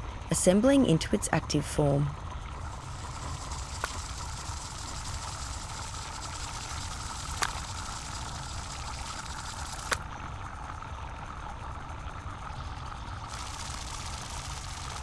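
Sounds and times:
hiss: 2.7 - 10.0, 13.3 - 15.0
sharp clicks: 2.9 - 10.0.

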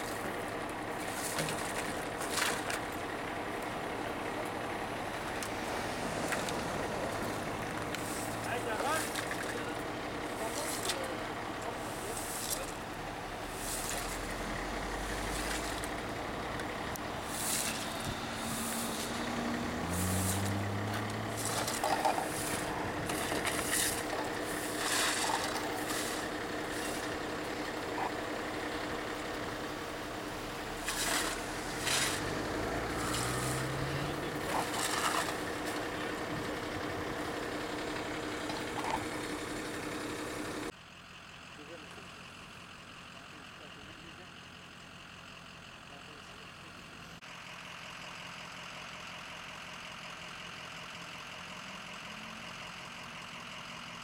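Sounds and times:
fire truck engine idling: 0.0 - 19.8, 20.8 - 30.8, 34.2 - 54.0
scraping and hissing: 13.5 - 14.3, 17.2 - 27.2.

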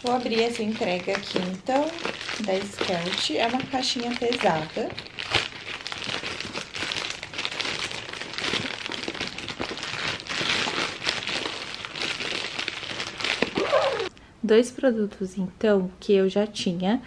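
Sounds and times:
plastic bag crinkling and tearing: 0.0 - 14.1.

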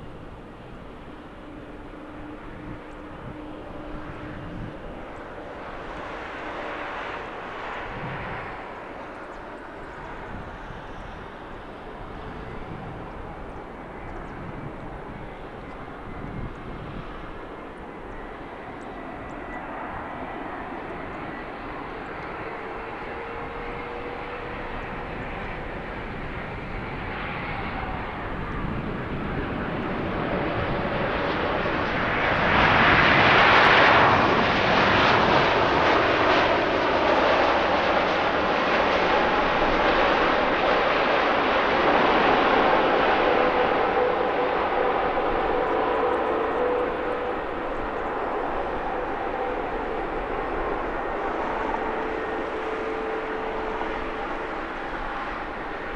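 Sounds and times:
jet airliner engines rushing: 0.0 - 55.9.

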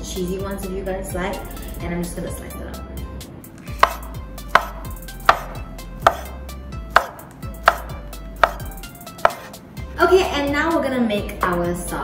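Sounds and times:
knife knocking on wooden board: 3.8 - 9.5.

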